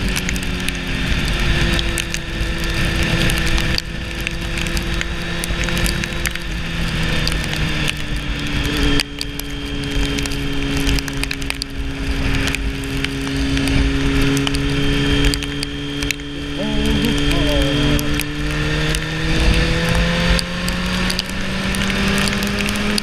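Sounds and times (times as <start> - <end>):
motorcycle engine cruising: 0.0 - 23.0
wind rumble: 0.0 - 23.0
sharp ticks: 20.3 - 23.0.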